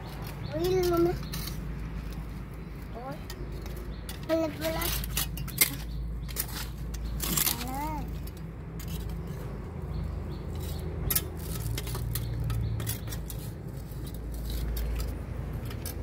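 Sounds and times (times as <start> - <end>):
tongs scraping on concrete: 0.0 - 16.0.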